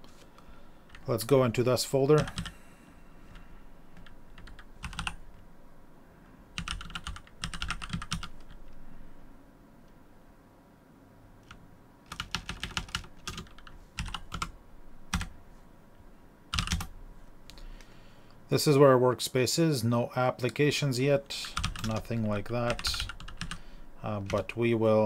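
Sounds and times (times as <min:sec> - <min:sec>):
keyboard typing: 0:02.2 - 0:02.6, 0:04.0 - 0:05.4, 0:06.6 - 0:08.8, 0:11.4 - 0:14.5, 0:15.1 - 0:15.3, 0:16.5 - 0:16.9, 0:21.4 - 0:23.6, 0:24.2 - 0:24.6.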